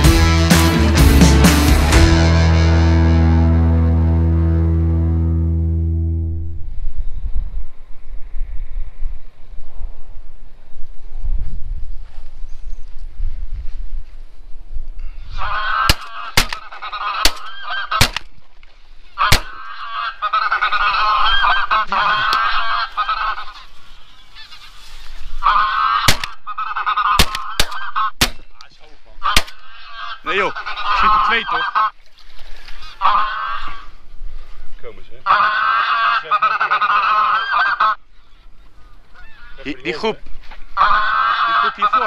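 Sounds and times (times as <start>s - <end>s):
geese honking: 15.3s - 32.0s, 32.6s - 34.0s, 35.1s - 42.0s.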